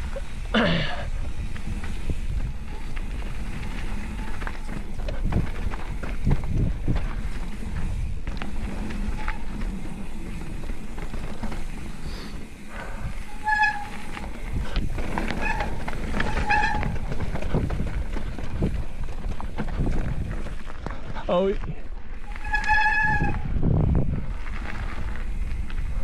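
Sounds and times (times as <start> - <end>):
brake squeals: 0.0 - 6.4, 7.1 - 17.9, 22.2 - 23.7
wind on microphone: 0.0 - 11.1, 12.7 - 21.2, 22.2 - 26.0
bike rattling: 0.0 - 26.0
bike tyres rumbling on dirt: 0.0 - 26.0.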